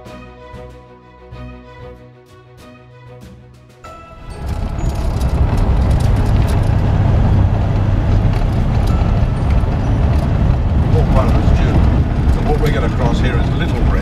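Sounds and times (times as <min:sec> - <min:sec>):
tyres and engine rumble: 0:03.9 - 0:14.0.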